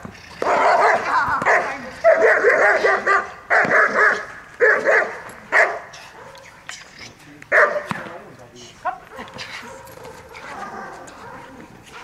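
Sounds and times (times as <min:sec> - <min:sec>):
dog barking and yelping: 0:00.4 - 0:06.6, 0:09.1 - 0:12.0.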